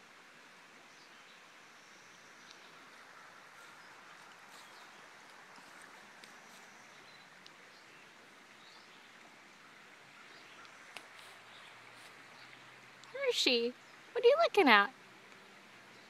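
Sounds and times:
flowing river water: 0.0s - 16.0s.

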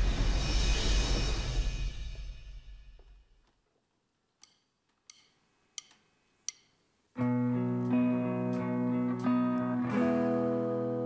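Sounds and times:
sharp count-in clicks: 4.4s - 6.8s
electric guitar ringing chords: 7.2s - 11.0s.

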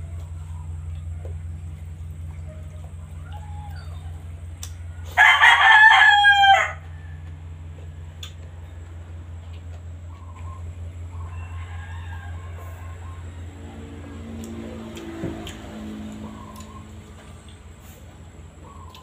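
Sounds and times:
steady low hum: 0.0s - 19.0s
rooster crowing: 2.2s - 8.8s, 10.3s - 17.2s.

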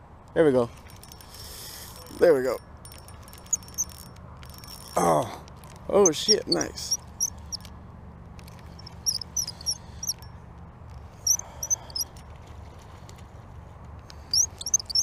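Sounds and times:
fishing reel squeaking: 0.8s - 7.7s, 8.4s - 10.4s, 11.2s - 12.1s, 14.2s - 15.0s.

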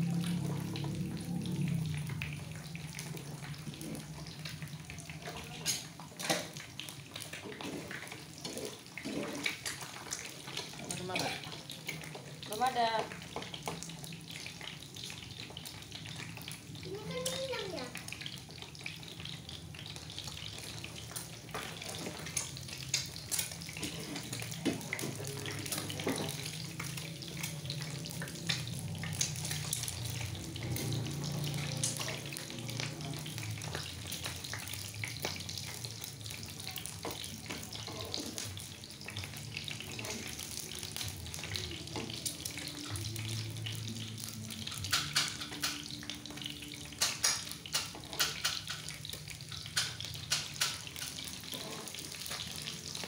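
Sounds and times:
eggs sizzling in a pan: 0.0s - 53.0s
spatula scraping and tapping pan: 20.2s - 28.8s, 43.9s - 52.7s.

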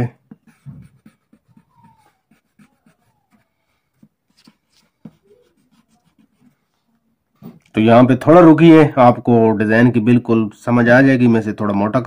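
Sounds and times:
eraser rubbing on paper: 0.3s - 6.8s.

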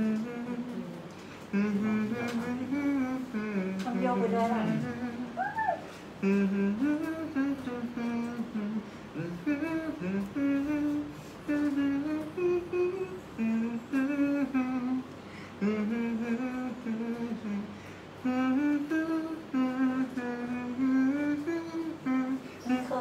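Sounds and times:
man humming: 0.0s - 23.0s.

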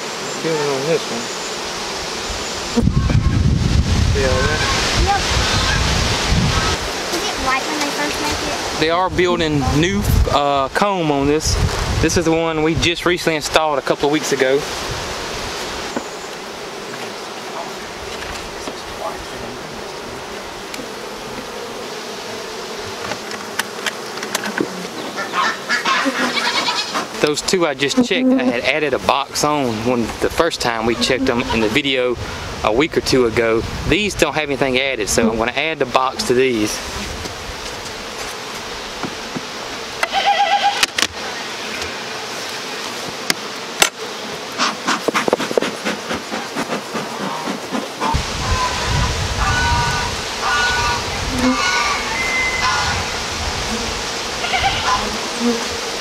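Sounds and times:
bees buzzing: 0.0s - 32.9s, 33.7s - 56.0s
short high-pitched call: 51.5s - 53.0s.

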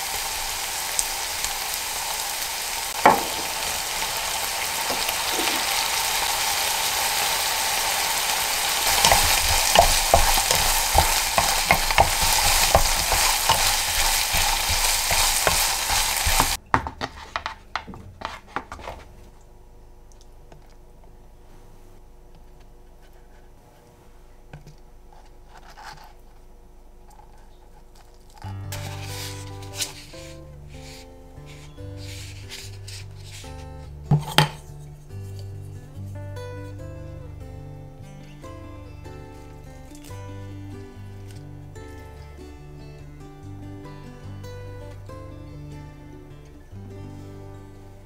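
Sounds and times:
meat sizzling in a frying pan: 0.0s - 16.6s
ladle tapping and scraping: 2.9s - 6.5s, 8.2s - 19.1s
wooden spatula clacking and scraping: 2.9s - 19.1s
sharp knock: 3.0s - 3.8s.

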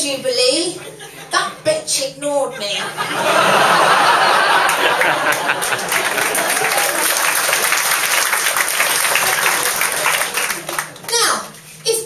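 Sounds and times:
audience applauding: 3.5s - 11.1s.

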